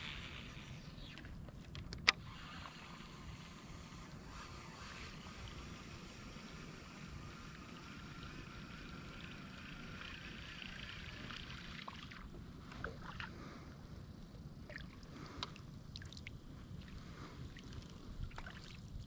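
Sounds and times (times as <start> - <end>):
low steady rumble: 0.0 - 19.0
paddle swishing water: 11.1 - 13.8.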